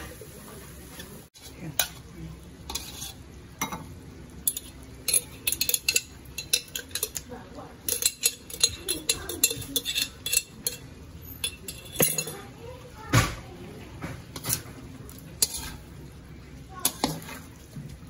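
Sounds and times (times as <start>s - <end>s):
metal spoon scraping and knocking jar: 7.9s - 12.4s.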